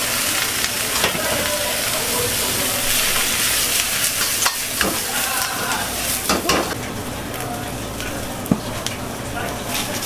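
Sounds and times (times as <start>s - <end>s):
cabbage sizzling in a wok: 0.0s - 6.8s.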